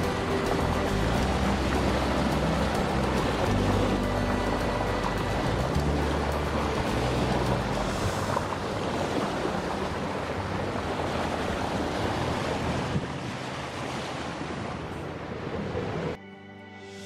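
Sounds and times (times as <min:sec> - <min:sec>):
wind buffeting microphone: 0:00.0 - 0:13.5
bow wave rushing and splashing: 0:00.0 - 0:16.2.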